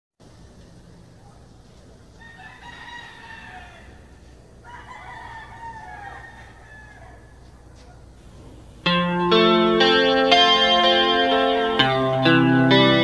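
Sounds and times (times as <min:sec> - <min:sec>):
faint rooster crowing: 0:00.8 - 0:08.2.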